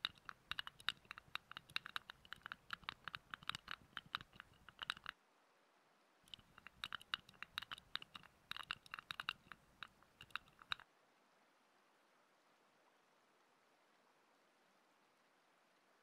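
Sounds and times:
fingertips rubbing microphone: 0:00.0 - 0:05.1, 0:06.3 - 0:10.8.

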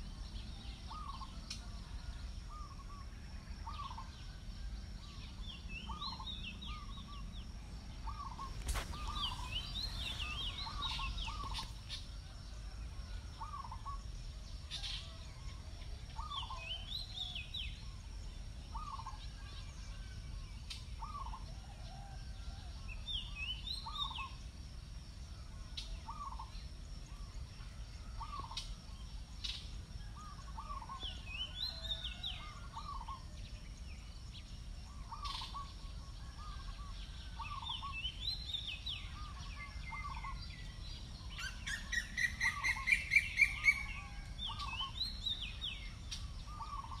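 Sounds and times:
birds chirping: 0:05.2 - 0:12.3, 0:36.4 - 0:47.0
loud rising bird calls: 0:08.0 - 0:12.0.

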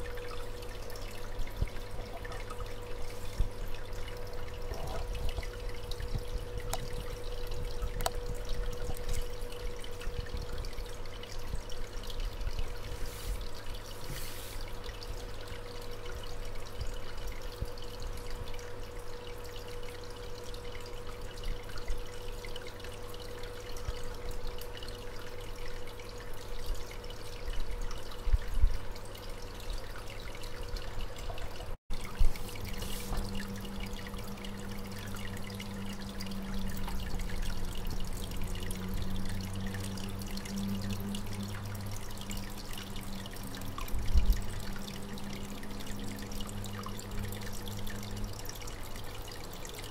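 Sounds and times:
aquarium water trickling: 0:00.0 - 0:49.9
steady low hum: 0:00.0 - 0:49.9.

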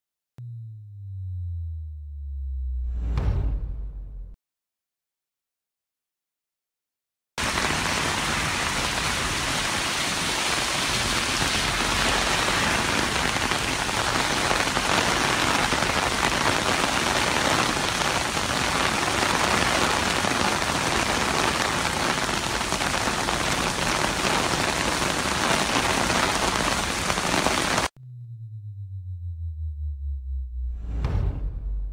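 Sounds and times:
heavy rain on pavement: 0:07.4 - 0:27.9.

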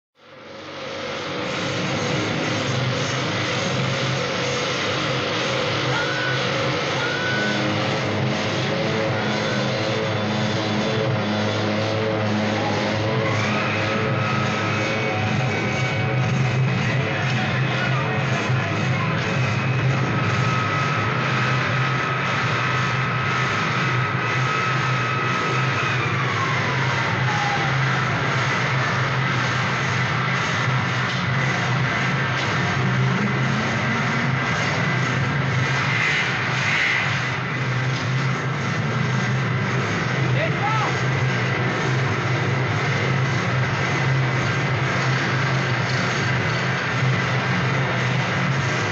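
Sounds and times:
dense noisy drone: 0:00.2 - 0:48.9
low hum: 0:00.2 - 0:48.9
heavily distorted extreme metal music: 0:00.3 - 0:48.9
high tone sliding downward: 0:03.8 - 0:38.1.

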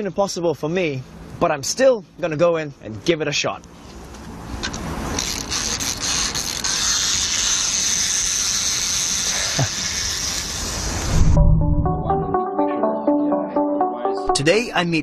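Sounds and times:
wind-up toy winding clicks: 0:05.2 - 0:10.9.

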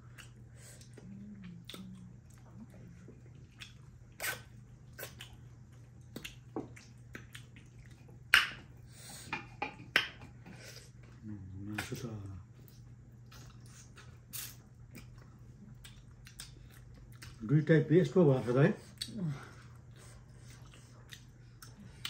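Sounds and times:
wet chewing and lip smacks: 0:00.0 - 0:08.8, 0:12.6 - 0:17.5, 0:19.8 - 0:22.0
steady low hum: 0:00.0 - 0:22.0.

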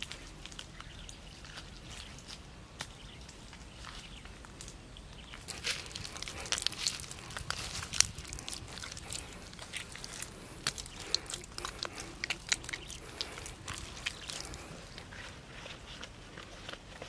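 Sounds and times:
gritty crackles: 0:00.0 - 0:17.0
wet clay squelching: 0:05.4 - 0:16.9.

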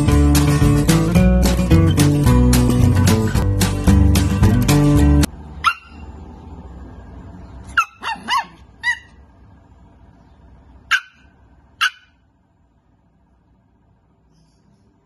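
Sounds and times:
puppy yipping: 0:05.6 - 0:06.2, 0:07.7 - 0:09.2, 0:10.9 - 0:12.2.

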